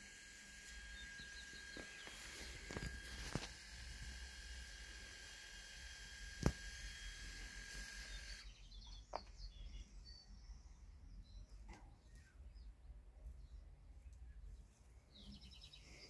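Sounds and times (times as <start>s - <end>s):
bird chirps: 8.1s - 12.8s, 13.4s - 16.0s.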